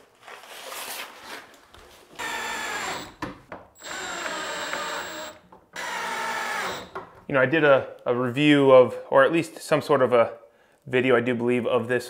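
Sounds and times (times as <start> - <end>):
power driver driving screws: 2.2 - 7.0.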